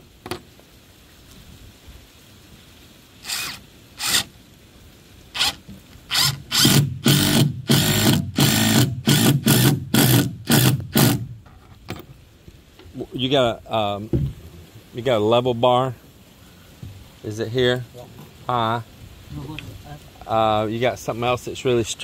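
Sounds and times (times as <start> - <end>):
power drill bursts: 3.2 - 4.3, 5.4 - 11.3.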